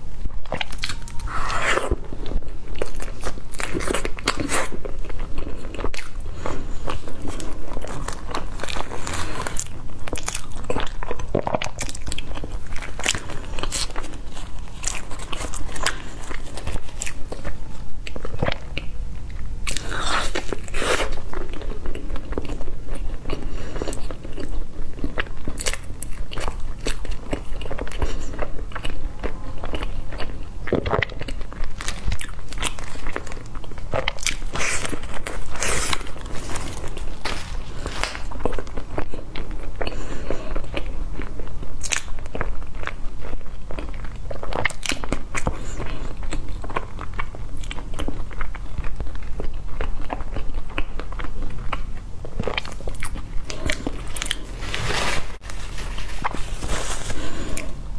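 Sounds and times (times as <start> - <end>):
plastic liner crinkling: 34.8 - 38.6, 54.0 - 57.5.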